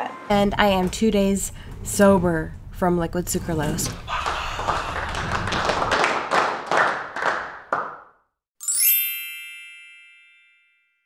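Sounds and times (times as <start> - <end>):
bright chime ringing: 8.6 - 11.0.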